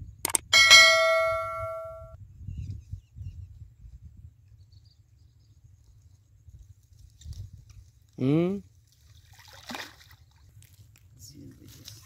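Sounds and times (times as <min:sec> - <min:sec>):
bell-like ding: 0:00.5 - 0:02.2.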